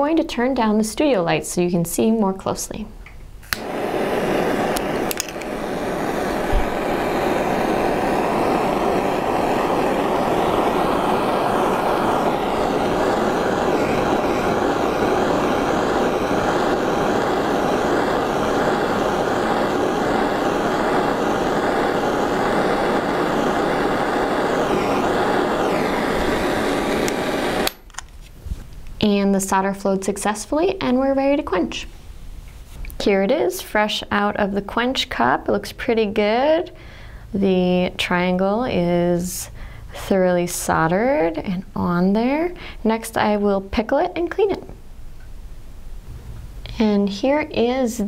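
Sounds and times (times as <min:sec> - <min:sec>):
torch flame hissing: 0:03.4 - 0:28.5.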